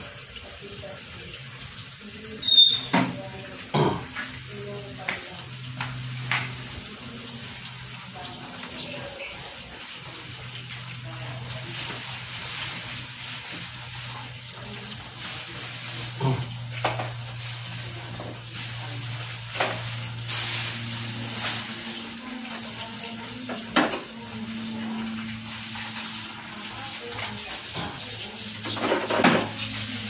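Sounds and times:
salt hissing in a pan: 17.2 - 22.3.

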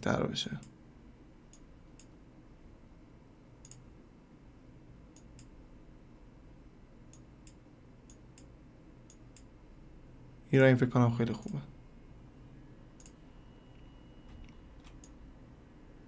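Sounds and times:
low room hum: 0.0 - 16.0
computer mouse clicks: 1.5 - 2.2, 3.6 - 3.8, 5.1 - 5.5, 7.1 - 8.5, 9.1 - 9.5, 13.0 - 13.2, 14.4 - 15.2.

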